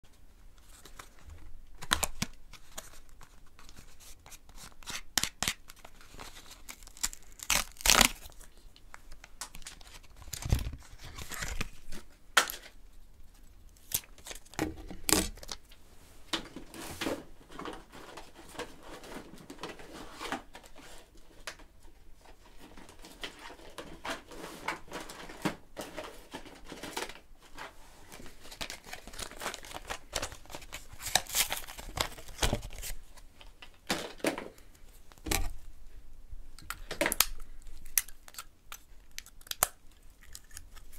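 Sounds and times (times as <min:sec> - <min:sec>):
packaging tearing and crinkling: 0:01.8 - 0:08.6, 0:09.4 - 0:12.8, 0:13.8 - 0:15.6, 0:28.4 - 0:33.0, 0:37.0 - 0:40.9.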